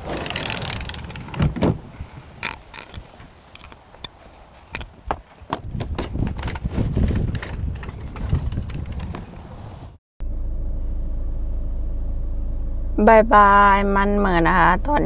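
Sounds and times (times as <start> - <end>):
low rumble: 10.2 - 15.0.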